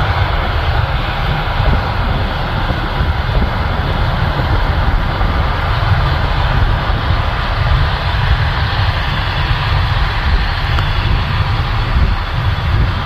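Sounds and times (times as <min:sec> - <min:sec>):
tractor engine and machinery rumble: 0:00.0 - 0:13.0.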